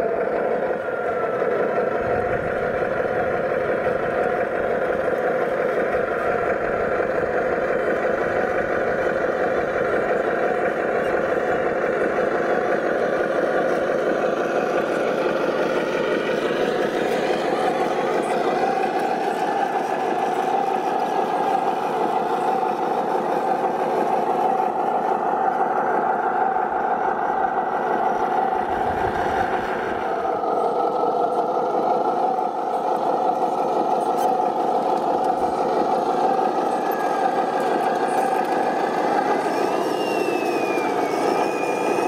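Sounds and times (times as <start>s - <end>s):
model truck mechanical hum: 0.0s - 42.0s
thin whine rising and falling: 24.8s - 31.5s.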